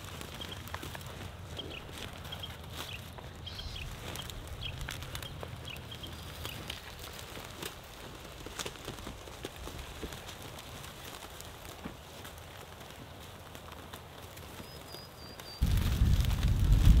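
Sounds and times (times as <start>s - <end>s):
small bird chirping: 0.2s - 0.9s, 1.5s - 7.0s, 14.6s - 15.6s.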